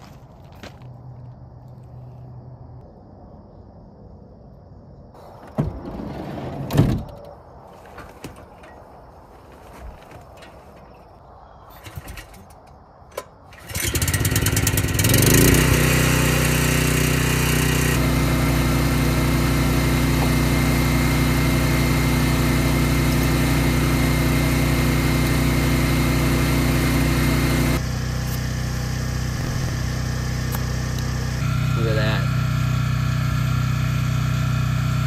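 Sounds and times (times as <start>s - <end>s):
portable generator running: 13.6s - 35.0s.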